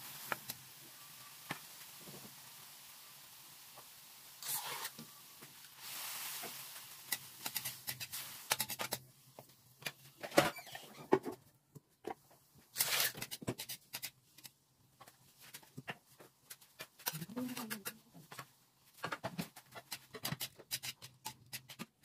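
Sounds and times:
liquid hissing in a pan: 0.0s - 9.1s
food sizzling in a wok: 0.0s - 11.0s, 12.7s - 15.7s
spatula scraping a wok: 4.4s - 5.1s, 5.8s - 9.0s, 12.7s - 14.5s, 19.6s - 22.0s.

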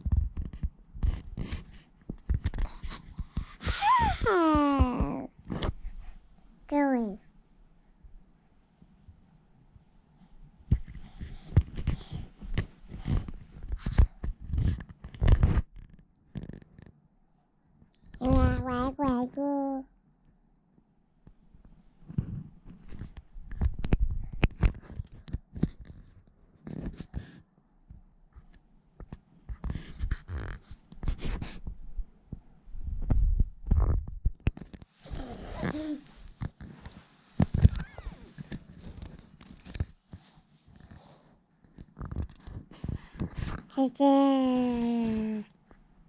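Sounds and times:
handling noise on camera: 0.0s - 3.4s, 4.5s - 6.2s, 10.6s - 17.0s, 21.2s - 43.8s.

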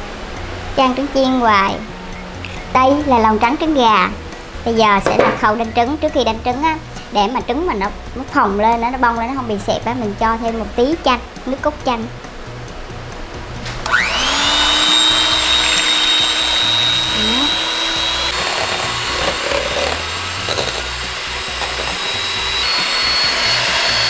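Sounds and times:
electric hand mixer whining: 13.8s - 24.0s.

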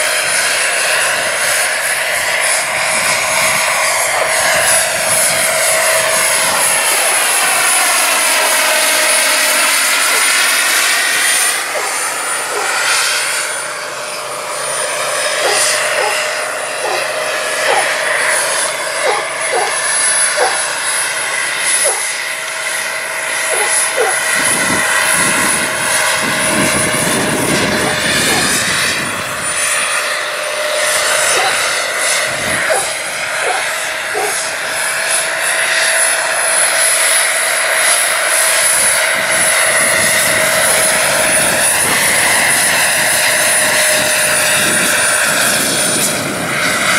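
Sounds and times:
gas turbine high whine: 0.0s - 46.9s
helicopter rotor noise: 0.0s - 46.9s.

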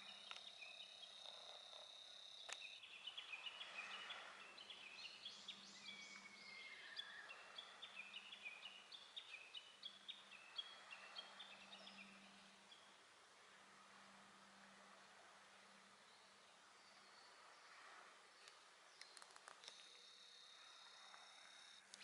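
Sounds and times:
birds chirping: 0.0s - 13.0s
faint low hum: 0.0s - 22.0s.

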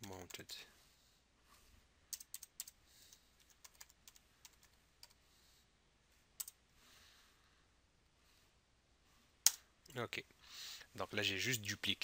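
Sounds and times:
computer keyboard typing: 2.1s - 2.8s, 3.4s - 5.2s.

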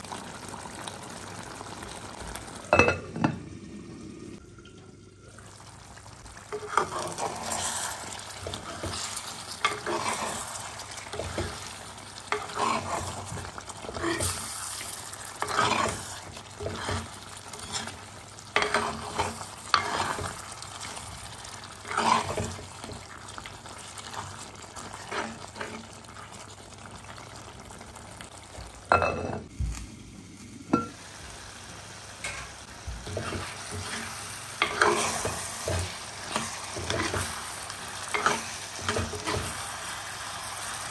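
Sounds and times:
curry sizzling: 0.0s - 40.9s
ladle scraping clay pot: 15.4s - 18.0s.

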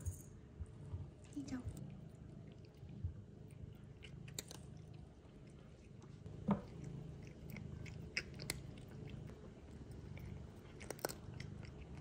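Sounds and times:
cat crunching a treat: 1.7s - 12.0s.

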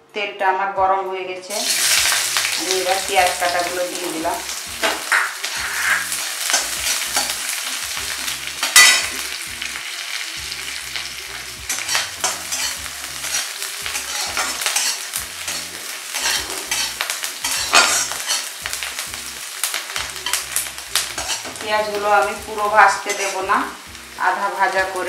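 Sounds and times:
onions sizzling in hot oil: 1.5s - 25.0s
spatula scraping a pan: 4.5s - 9.7s, 11.7s - 18.8s, 20.2s - 21.6s, 22.8s - 23.6s.

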